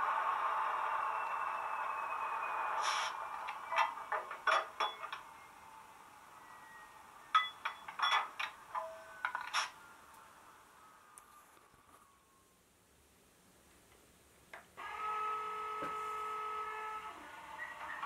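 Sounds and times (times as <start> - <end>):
hum with falling whine: 0.0 - 4.1
metallic clinks and clanks: 3.7 - 5.3, 7.3 - 9.7.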